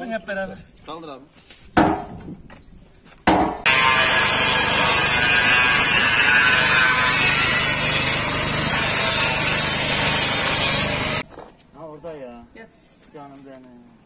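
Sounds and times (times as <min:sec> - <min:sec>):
angle grinder cutting metal: 0:03.7 - 0:11.2.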